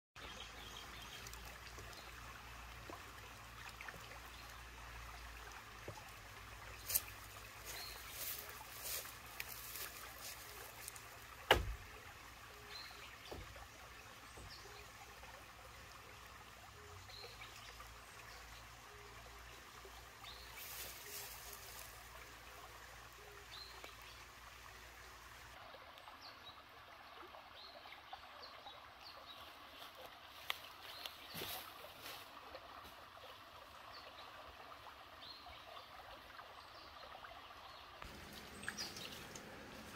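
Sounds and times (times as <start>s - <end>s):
water trickling in a ditch: 0.2s - 39.9s
sharp knocks: 11.5s - 11.8s.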